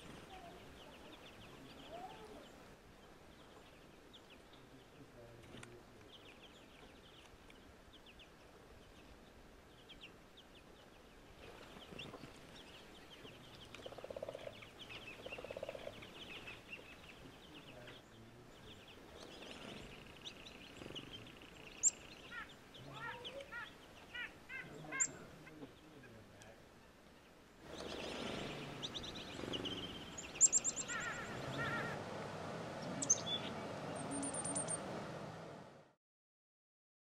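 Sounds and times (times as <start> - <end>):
songbirds chirping and twittering: 0.0 - 35.9
harsh repeated bird notes: 27.6 - 35.6
honk-like bird calls: 30.8 - 32.1.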